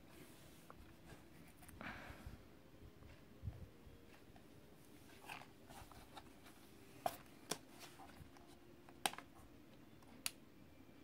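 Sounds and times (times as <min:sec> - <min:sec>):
soft rustling: 0:03.0 - 0:08.6.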